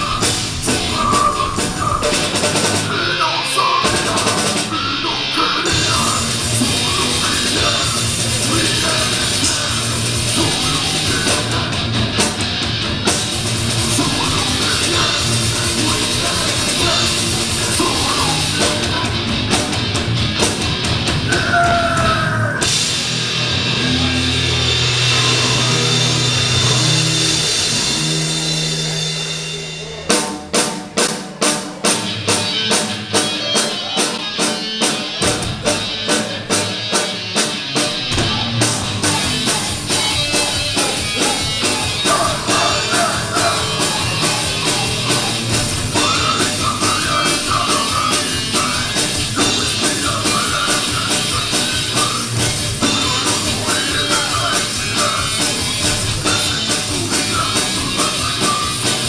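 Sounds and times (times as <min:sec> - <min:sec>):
drum beat: 0:00.0 - 0:03.0, 0:05.7 - 0:23.4, 0:35.0 - 0:59.0
person singing: 0:00.0 - 0:12.3, 0:13.8 - 0:19.3, 0:21.3 - 0:22.7, 0:38.1 - 0:59.0
rock band playing: 0:00.0 - 0:59.0.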